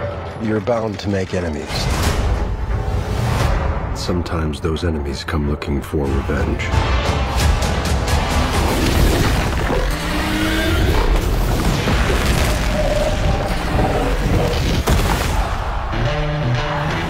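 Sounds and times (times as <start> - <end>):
music: 0.0 - 17.0
deep booms and explosions: 10.9 - 15.9.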